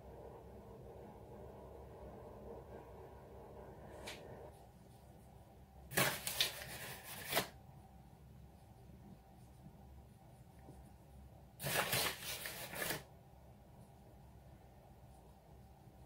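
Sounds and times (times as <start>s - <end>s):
rustling scraping handling noise: 5.9s - 7.6s, 11.6s - 13.1s.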